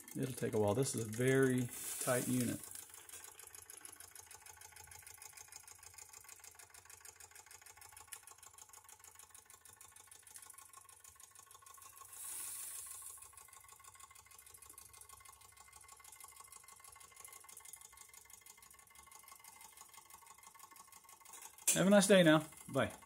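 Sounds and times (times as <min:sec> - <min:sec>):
steam engine ticking: 0:00.0 - 0:23.0
steam hiss: 0:01.7 - 0:02.6, 0:12.0 - 0:13.3.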